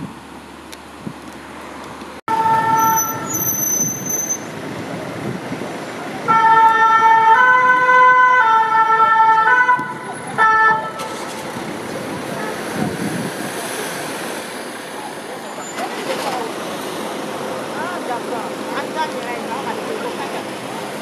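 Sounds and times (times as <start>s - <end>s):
street traffic noise: 0.0s - 21.0s
two-tone siren: 2.3s - 3.5s, 6.3s - 11.0s.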